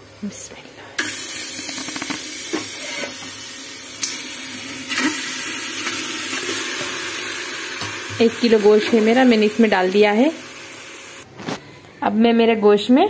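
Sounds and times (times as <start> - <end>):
meat sizzling in a pot: 1.0 - 11.2.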